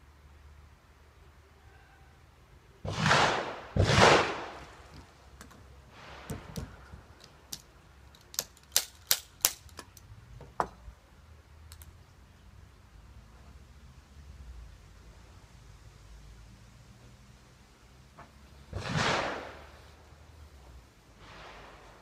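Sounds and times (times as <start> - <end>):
sharp metallic clicks: 4.9 - 10.1, 11.6 - 12.0.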